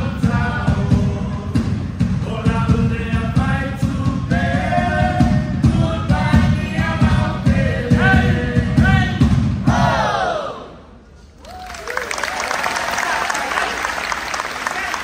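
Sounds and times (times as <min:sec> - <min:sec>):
group singing in harmony: 0:00.0 - 0:10.8.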